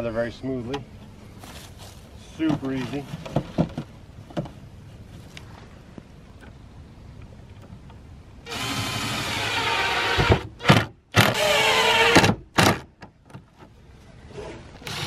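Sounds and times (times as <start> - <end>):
cordless driver motor whining: 8.5 - 12.3.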